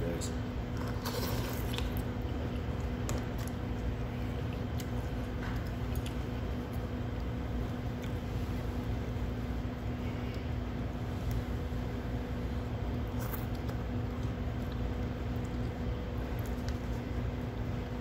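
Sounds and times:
slurping noodles: 0.8s - 2.0s.

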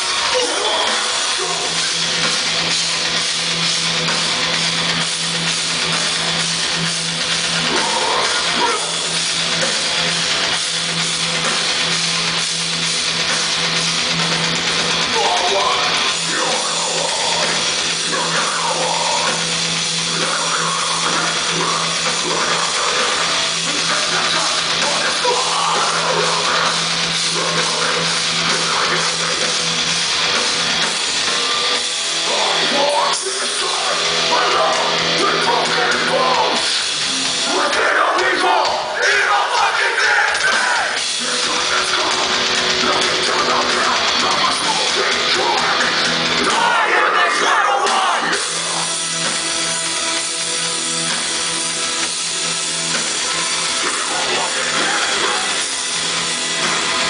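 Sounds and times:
harsh screamed vocals: 0.0s - 2.7s, 7.3s - 10.6s, 15.0s - 30.0s, 30.6s - 49.0s, 53.1s - 57.0s
distorted guitars: 0.0s - 57.0s
pounding drums: 0.0s - 57.0s.

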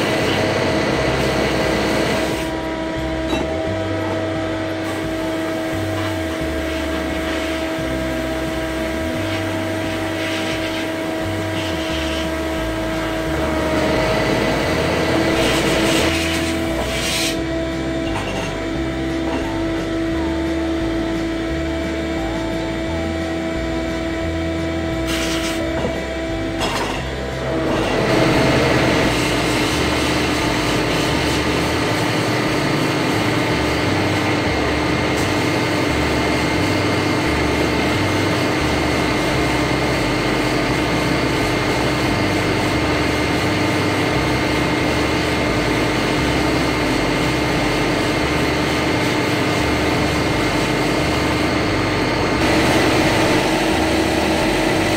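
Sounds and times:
steady machine hum: 0.0s - 54.9s
sandblast gun hissing: 15.1s - 17.5s, 25.1s - 25.7s, 52.4s - 54.9s.

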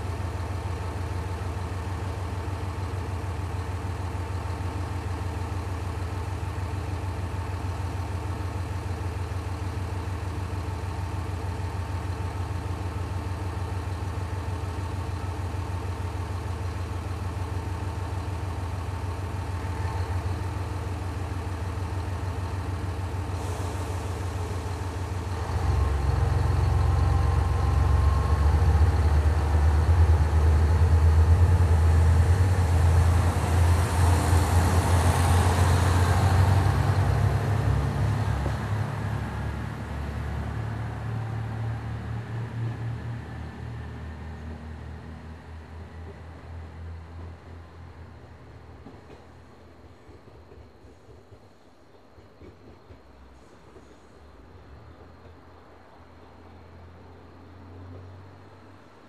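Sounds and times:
diesel engine idling: 0.0s - 42.0s.

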